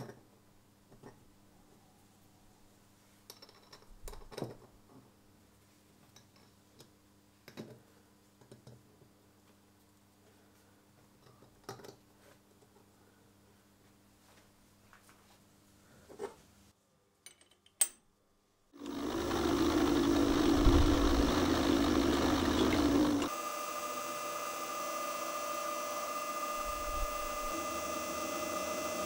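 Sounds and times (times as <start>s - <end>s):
end mill cutting metal: 18.8s - 29.0s
milling spindle whine: 18.8s - 29.0s.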